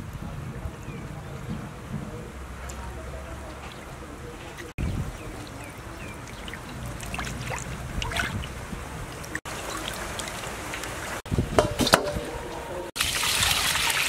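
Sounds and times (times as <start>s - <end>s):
water splashing in a metal basin: 2.4s - 12.4s, 13.0s - 14.0s
sharp knocks: 11.5s - 12.3s
water pouring over fish: 13.0s - 14.0s.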